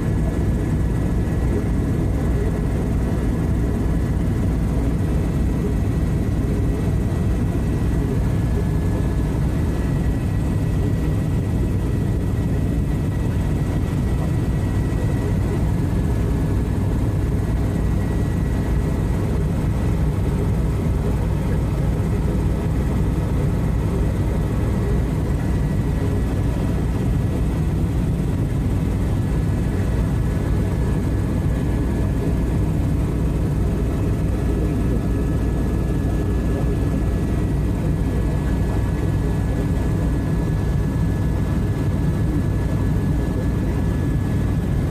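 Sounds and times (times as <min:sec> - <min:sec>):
faint high turbine whine: 0:00.0 - 0:44.9
helicopter rotor and engine rumble: 0:00.0 - 0:44.9.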